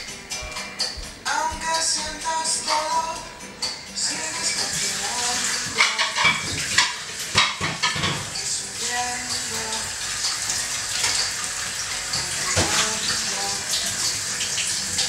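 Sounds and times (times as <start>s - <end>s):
tap running into sink: 4.5s - 15.0s.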